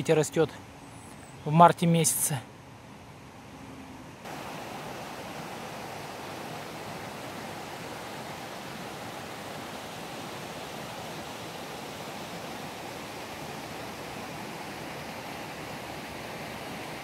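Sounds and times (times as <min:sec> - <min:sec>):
water rushing from stream: 0:04.2 - 0:17.0.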